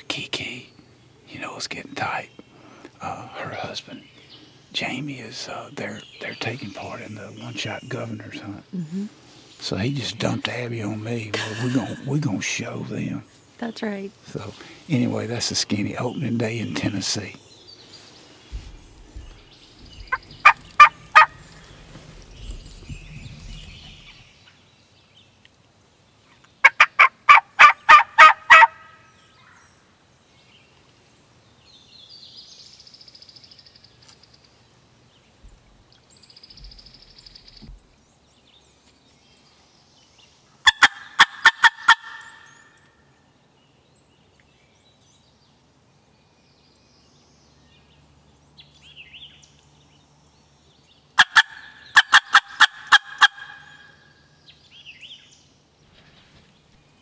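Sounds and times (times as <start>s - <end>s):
faint high bird calls: 16.1s - 24.7s
turkey gobbling: 20.0s - 22.0s, 26.6s - 28.8s, 40.6s - 42.5s, 51.2s - 54.0s.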